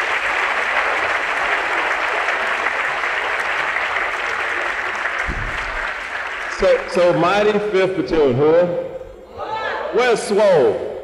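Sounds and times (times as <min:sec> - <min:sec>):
audience applauding: 0:00.0 - 0:07.8
short low thump: 0:05.2 - 0:05.8.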